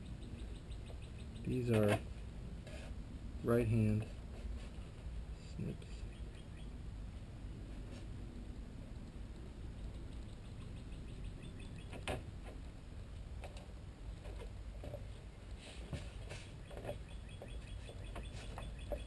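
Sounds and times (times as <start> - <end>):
chirpy squeaks of snips: 14.9 - 19.0.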